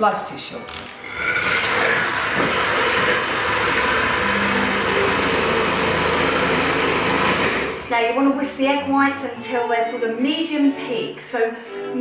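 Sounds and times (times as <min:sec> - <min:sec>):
electric hand mixer whisking: 0:00.9 - 0:08.2.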